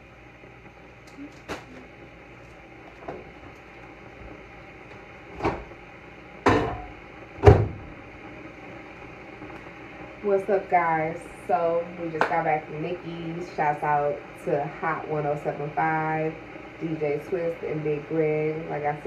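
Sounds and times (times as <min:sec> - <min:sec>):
cabinet doors knocking shut: 0:06.4 - 0:07.9.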